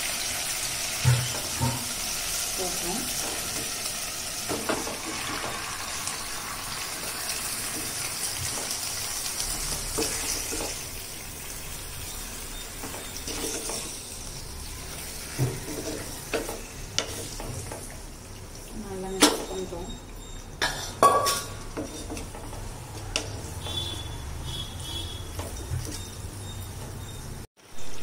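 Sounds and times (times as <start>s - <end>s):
chicken sizzling in hot oil: 0.0s - 20.4s.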